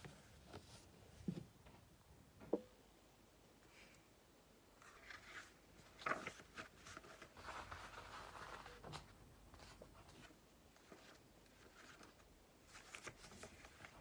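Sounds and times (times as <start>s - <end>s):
notebook pages rustling: 4.8s - 14.0s.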